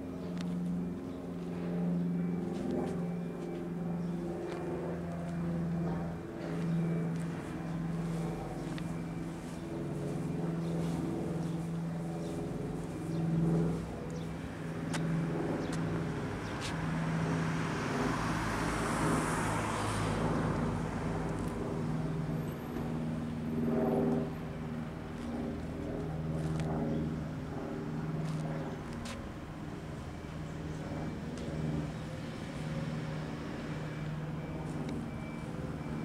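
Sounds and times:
steady low hum: 0.0s - 36.0s
car passing: 16.9s - 21.2s.

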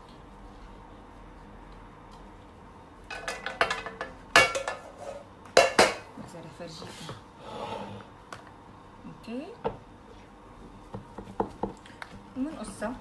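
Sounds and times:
utensil clattering on pizza pan: 3.1s - 5.0s.

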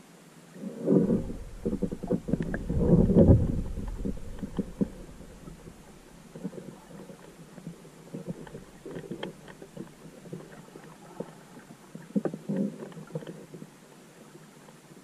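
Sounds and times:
muffled underwater camera knocks: 1.0s - 6.5s.

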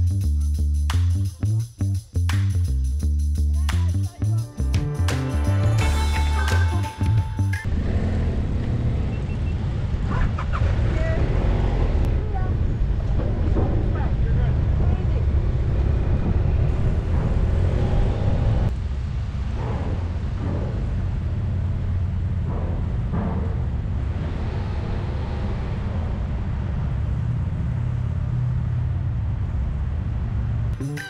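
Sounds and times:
motorcycle engine low rumble: 7.6s - 30.8s.

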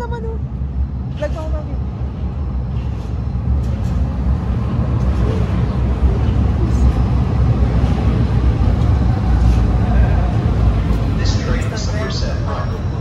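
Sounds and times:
light-rail train rumbling: 0.0s - 13.0s.

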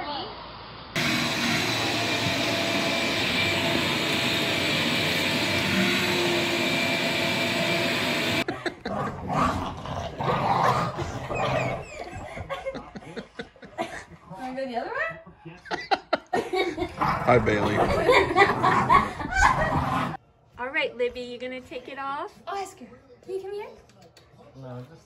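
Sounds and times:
shop vacuum running: 1.0s - 8.5s.

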